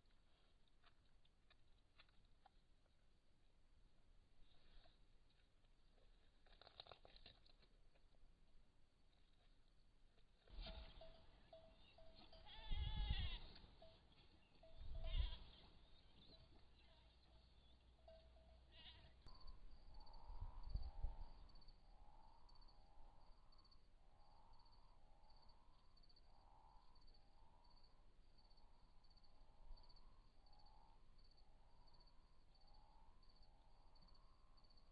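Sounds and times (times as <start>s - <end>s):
insects chirping: 9.0s - 34.9s
bleat-like call: 12.3s - 13.8s, 14.9s - 15.6s, 18.6s - 19.3s.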